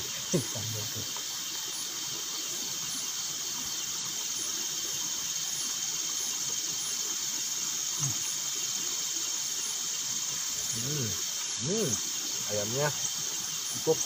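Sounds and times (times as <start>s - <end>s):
night insects droning: 0.0s - 14.0s
very high insect chirp: 0.0s - 14.0s.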